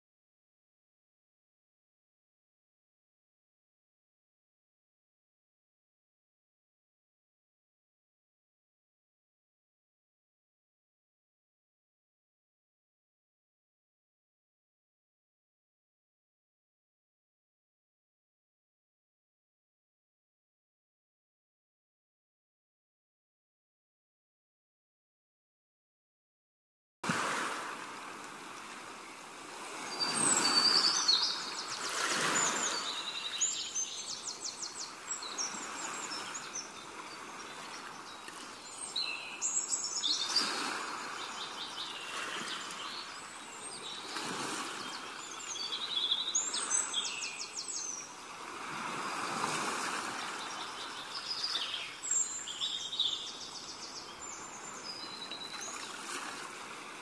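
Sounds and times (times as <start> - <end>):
small birds chirping: 29.9 - 48.2, 50.2 - 56.0.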